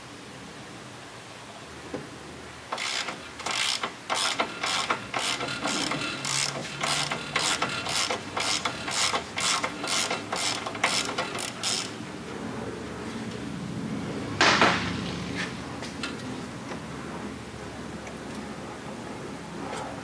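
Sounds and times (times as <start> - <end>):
ratchet wrench clicking: 2.7 - 12.0.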